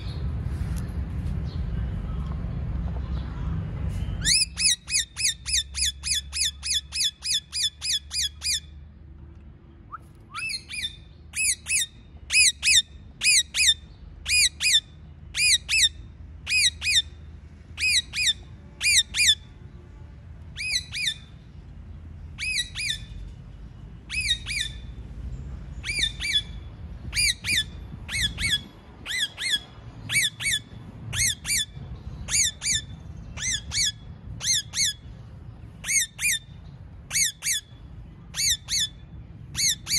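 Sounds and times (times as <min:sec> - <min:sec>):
parakeets screeching: 0:04.2 - 0:08.7, 0:10.4 - 0:17.2, 0:17.8 - 0:19.4, 0:20.6 - 0:21.3, 0:22.4 - 0:23.2, 0:24.1 - 0:25.0, 0:25.8 - 0:35.1, 0:35.8 - 0:39.9.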